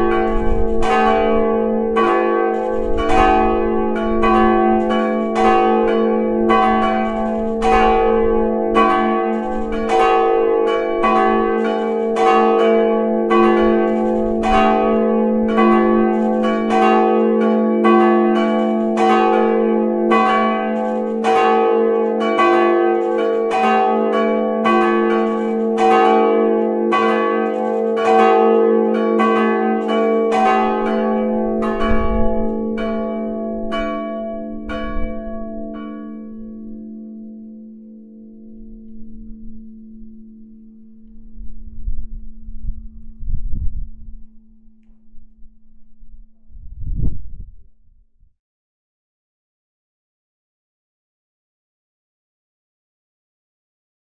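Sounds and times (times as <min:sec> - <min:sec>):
church bells ringing: 0:00.0 - 0:43.2.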